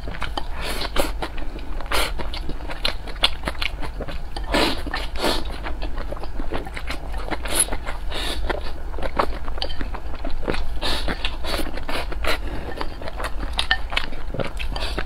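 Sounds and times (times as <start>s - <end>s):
chewing: 0.0s - 15.0s.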